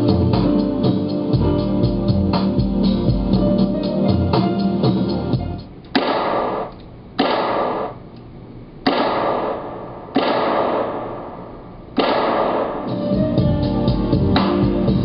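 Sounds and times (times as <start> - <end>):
sampled percussive cracks: 5.9 - 8.0, 8.8 - 11.4, 12.0 - 12.9.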